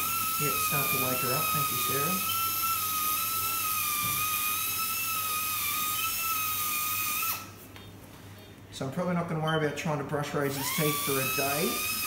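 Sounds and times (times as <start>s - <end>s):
dental handpiece whine: 0.0s - 7.6s, 10.4s - 12.0s.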